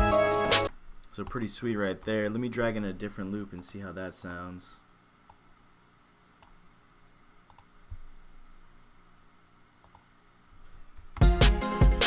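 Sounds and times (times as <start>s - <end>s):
computer mouse clicking: 7.5s - 7.7s, 9.8s - 10.1s.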